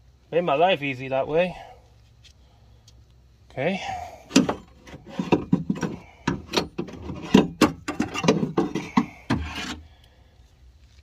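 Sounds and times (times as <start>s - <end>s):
hard parts knocking and rattling: 4.3s - 9.8s.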